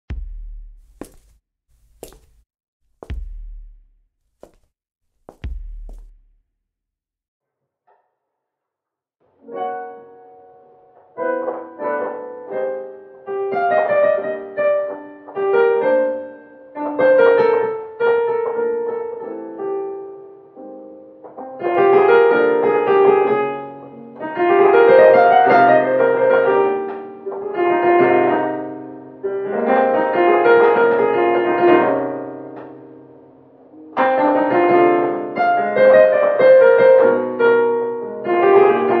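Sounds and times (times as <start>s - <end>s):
piano chords and melody: 9.4s - 39.0s.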